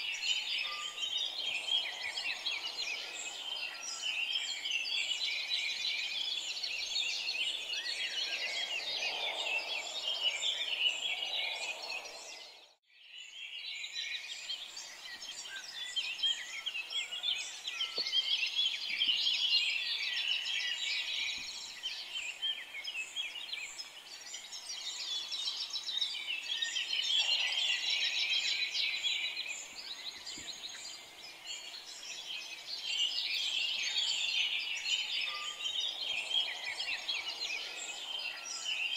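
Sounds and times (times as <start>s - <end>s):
birds chirping and singing: 0.0s - 38.9s.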